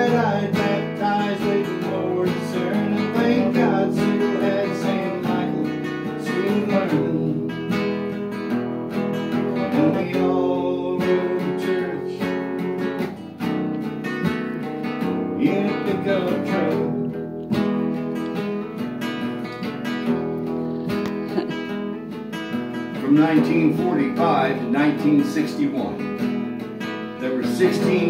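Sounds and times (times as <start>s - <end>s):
nylon-string guitar strumming chords: 0.0s - 28.0s.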